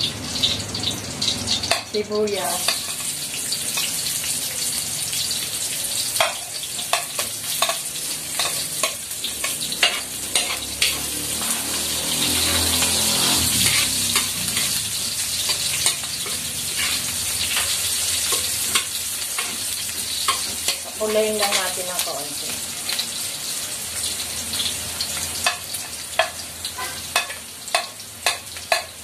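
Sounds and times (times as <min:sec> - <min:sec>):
onions sizzling in hot oil: 0:00.0 - 0:29.0
metal spoon scraping wok: 0:06.2 - 0:22.0, 0:24.6 - 0:29.0.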